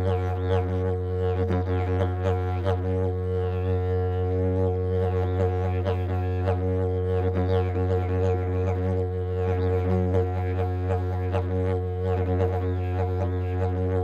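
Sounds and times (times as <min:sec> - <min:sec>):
didgeridoo drone: 0:00.0 - 0:14.0.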